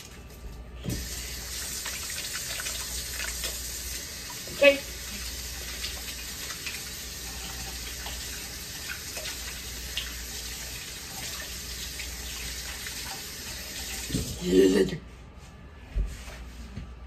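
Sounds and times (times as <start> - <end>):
hands washing with splashes: 0.0 - 14.4
tap running into sink: 0.8 - 1.2.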